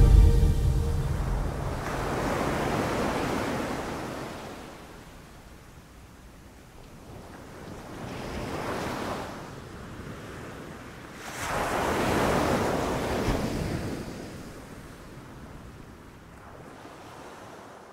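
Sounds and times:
ocean waves breaking on beach: 10.2s - 14.8s.

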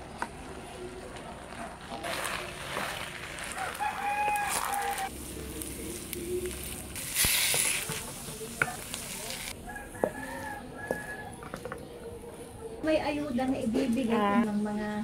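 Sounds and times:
rice mixture sizzling in pan: 1.4s - 9.6s.

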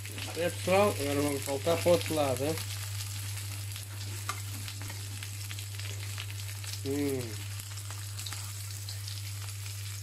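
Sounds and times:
pork chops sizzling in oil: 0.0s - 10.0s
person humming: 6.8s - 7.4s.

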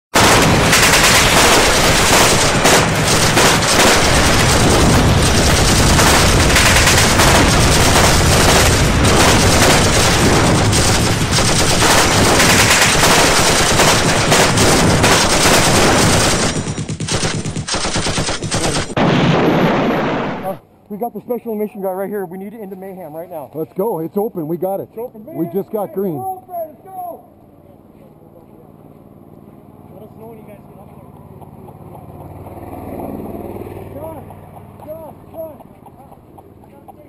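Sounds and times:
machine guns firing: 0.2s - 20.6s.

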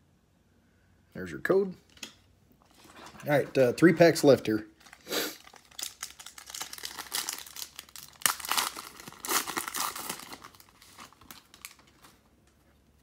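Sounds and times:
foil wrapper tearing and crinkling: 4.8s - 12.2s.

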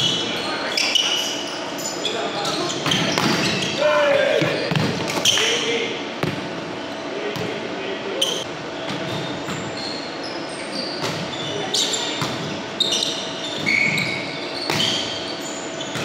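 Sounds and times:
sneaker squeaks on hardwood: 0.0s - 3.8s, 8.2s - 16.0s.

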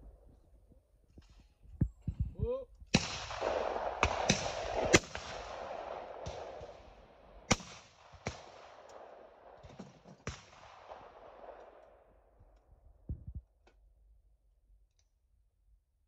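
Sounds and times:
shotgun shots: 2.9s - 12.1s
gun handling clicks: 8.8s - 10.4s.

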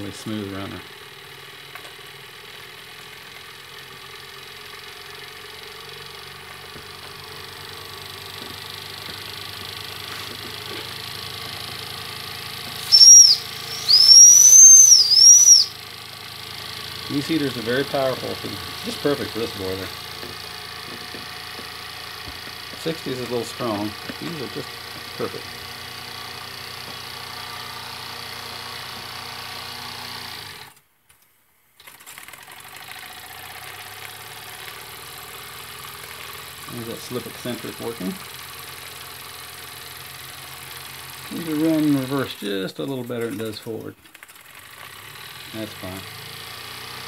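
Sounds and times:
small steam engine running: 0.0s - 30.8s, 31.8s - 47.0s
toy steam whistle tooting: 12.8s - 15.8s.

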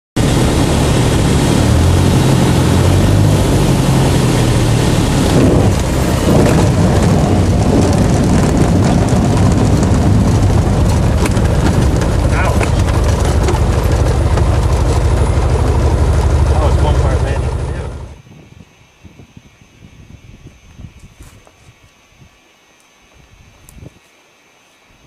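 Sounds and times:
plane engine and propeller droning: 0.2s - 18.2s
knocking and rattling on gravel: 5.8s - 16.5s.

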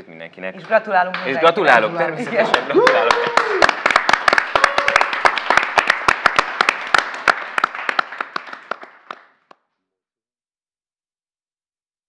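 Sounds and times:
people clapping: 0.6s - 1.6s, 2.2s - 9.8s.

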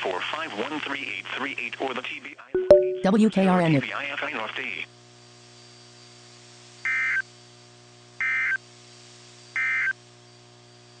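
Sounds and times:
data tone bursts: 2.6s - 3.7s.

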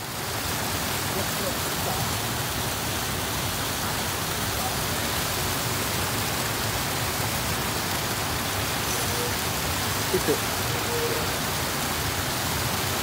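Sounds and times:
water rushing over weir: 0.0s - 13.0s.

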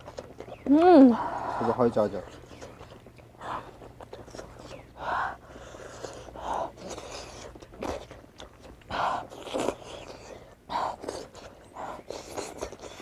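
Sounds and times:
person biting and chewing: 5.8s - 13.0s.

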